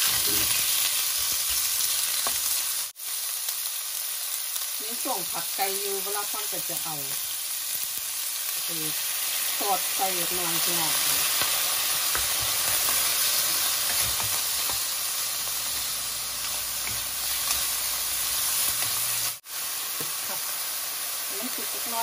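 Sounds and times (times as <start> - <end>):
chicken sizzling in frying pan: 0.0 - 22.0.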